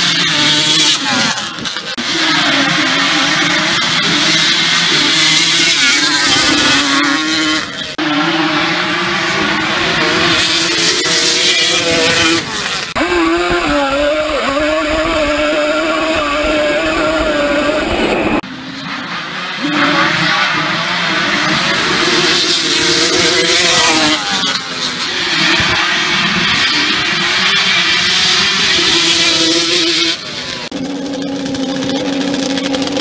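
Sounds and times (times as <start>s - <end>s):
two-stroke quad engines revving: 0.0s - 33.0s.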